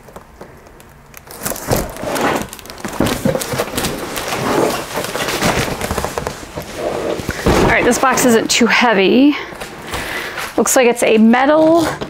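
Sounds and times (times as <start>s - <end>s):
cardboard and plastic packaging handled: 0.0s - 8.6s
packaging thuds: 0.0s - 8.6s.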